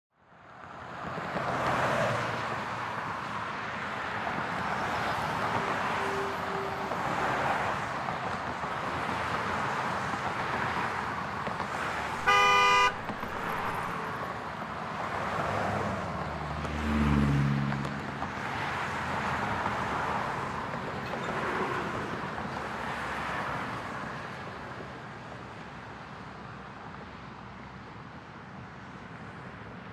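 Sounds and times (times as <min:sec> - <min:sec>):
car road noise: 0:00.3 - 0:29.9
car horn blast: 0:05.5 - 0:07.4, 0:12.2 - 0:13.9.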